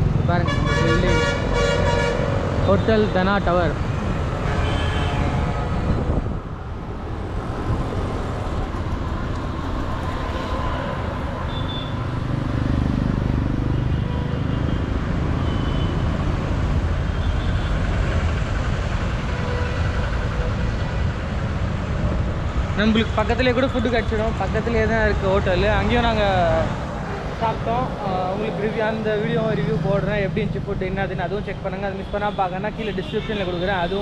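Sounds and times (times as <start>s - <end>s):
low rumble of traffic: 0.0s - 34.0s.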